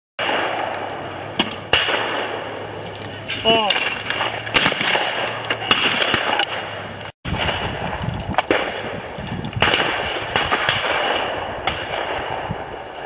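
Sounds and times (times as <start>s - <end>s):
shotgun shots: 0.2s - 2.5s, 4.0s - 7.8s, 9.6s - 12.6s
steady background noise: 0.2s - 13.0s.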